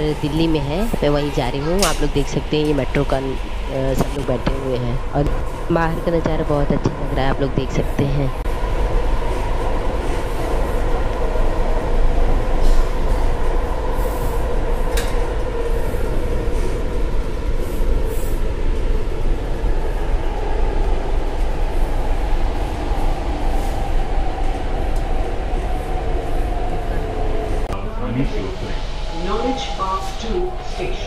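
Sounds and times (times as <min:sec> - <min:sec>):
constant whine: 0:00.0 - 0:31.0
train rumble: 0:00.0 - 0:31.0.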